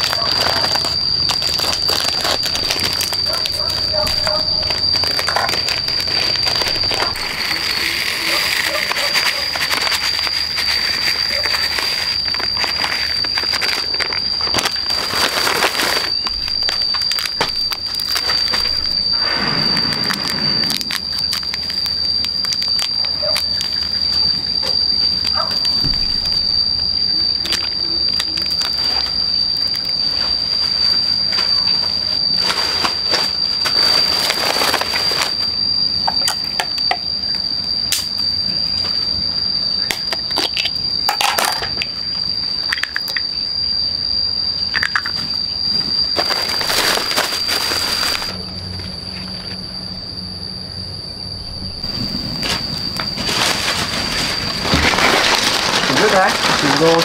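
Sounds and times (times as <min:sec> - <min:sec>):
rustling and crackling: 0:00.0 - 0:26.5, 0:51.8 - 0:57.0
high-pitched insect drone: 0:00.0 - 0:57.0.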